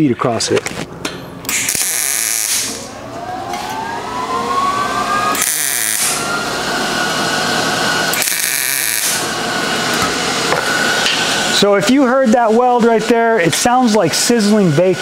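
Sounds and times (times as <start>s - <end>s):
welder crackling: 8.1s - 9.3s.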